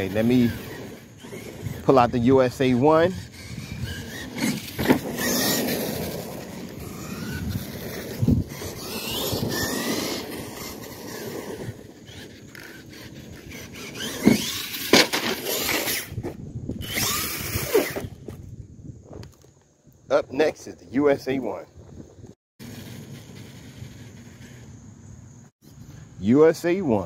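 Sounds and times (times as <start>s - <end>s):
electric motor whining: 0.0s - 18.4s
tyre noise on asphalt: 0.0s - 19.9s, 21.8s - 25.8s.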